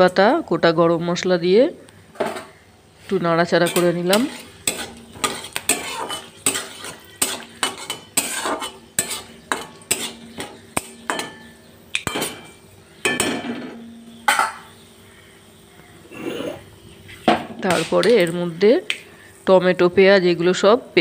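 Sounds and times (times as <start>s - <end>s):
oil sizzling: 2.8s - 15.1s
metal spatula scraping a pan: 3.5s - 14.0s.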